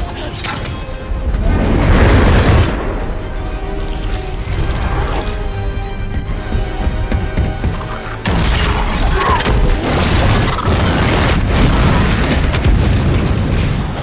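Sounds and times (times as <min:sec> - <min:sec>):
film score music: 0:00.0 - 0:14.0
rumble and crashing debris: 0:00.0 - 0:14.0
loud explosion: 0:01.4 - 0:03.4.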